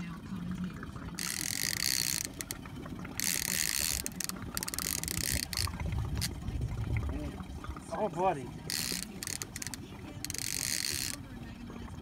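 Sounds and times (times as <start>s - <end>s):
fishing reel ratcheting: 1.2s - 2.6s, 3.2s - 6.4s, 8.7s - 11.3s
quick reel clicks: 1.2s - 2.6s, 3.2s - 6.3s, 8.7s - 11.2s.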